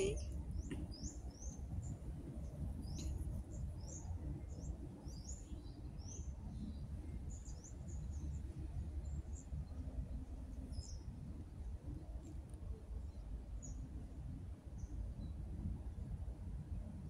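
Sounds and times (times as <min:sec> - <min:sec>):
small birds chirping: 0:00.0 - 0:11.2
steady low rumble: 0:00.0 - 0:17.0.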